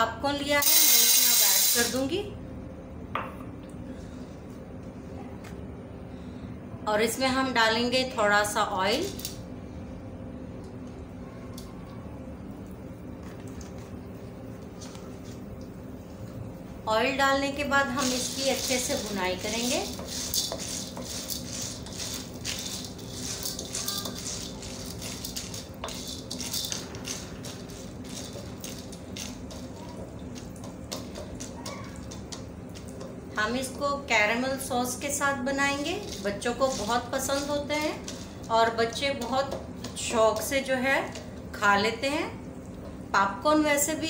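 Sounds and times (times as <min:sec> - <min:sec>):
kitchen background hum: 0:00.0 - 0:44.0
popcorn kernels rattling in wok: 0:00.6 - 0:02.0, 0:17.8 - 0:33.8, 0:34.6 - 0:41.3.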